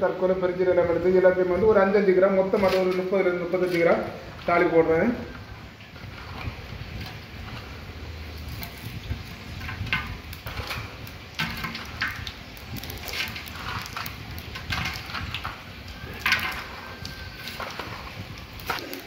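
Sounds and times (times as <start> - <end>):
spices crackling in hot oil: 1.4 - 19.0.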